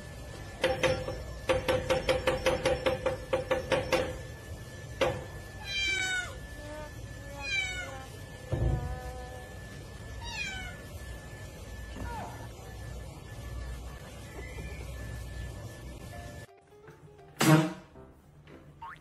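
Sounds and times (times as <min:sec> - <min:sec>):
cat meowing: 0:07.4 - 0:08.1, 0:10.2 - 0:10.8.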